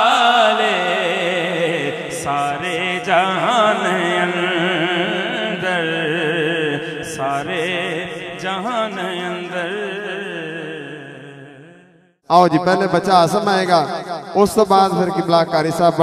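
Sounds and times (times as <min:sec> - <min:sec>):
man singing into a microphone: 0:00.0 - 0:11.7, 0:12.3 - 0:16.0.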